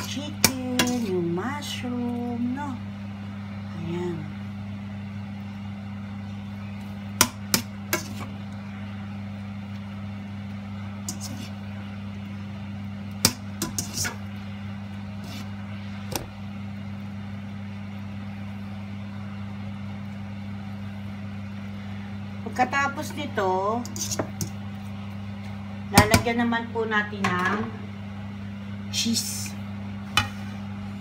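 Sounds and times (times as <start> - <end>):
utensils clicking and scraping on wok: 0.0 - 1.2, 7.2 - 8.3, 11.0 - 11.6, 13.2 - 14.3, 23.8 - 24.6
steady low hum: 0.0 - 31.0.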